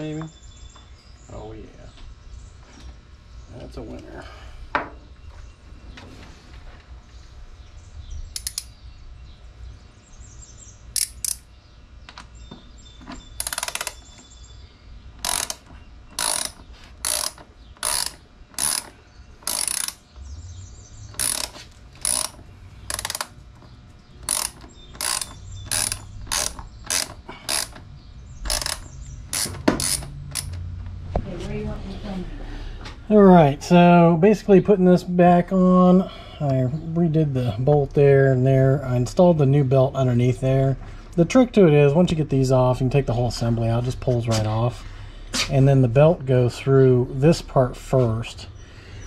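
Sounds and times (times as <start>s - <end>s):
ratchet wrench clicking: 8.4s - 8.7s, 10.9s - 11.5s, 13.4s - 14.0s, 15.2s - 20.0s, 21.1s - 23.4s, 24.2s - 27.8s, 28.5s - 30.6s.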